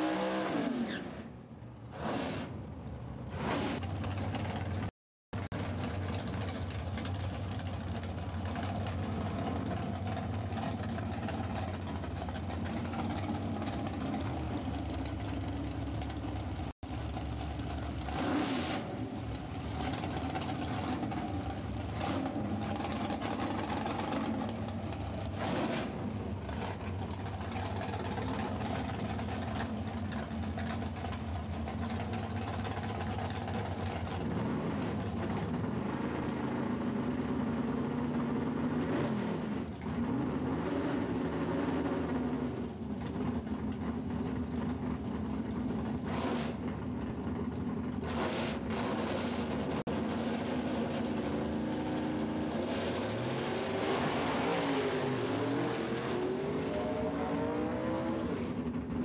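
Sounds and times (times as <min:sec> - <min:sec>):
drag car engine idling: 0:03.9 - 0:18.2, 0:19.0 - 0:25.4, 0:26.1 - 0:34.4, 0:35.0 - 0:35.8, 0:42.6 - 0:48.1.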